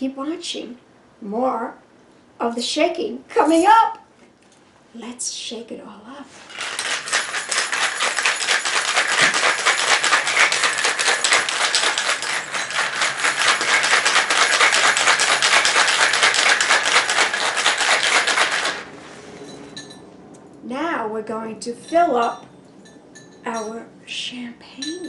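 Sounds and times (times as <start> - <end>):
ice cubes rattling in a shaker: 6.3 - 18.9.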